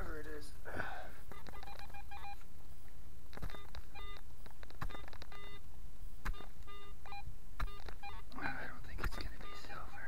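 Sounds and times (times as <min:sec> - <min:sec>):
metal detector beeps: 0:01.3 - 0:02.4, 0:03.4 - 0:04.2, 0:04.8 - 0:05.6, 0:06.3 - 0:08.2.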